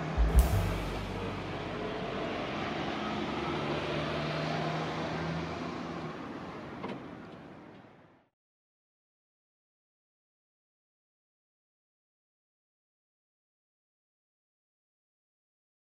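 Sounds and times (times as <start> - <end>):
road vehicle running noise: 0.0 - 8.3.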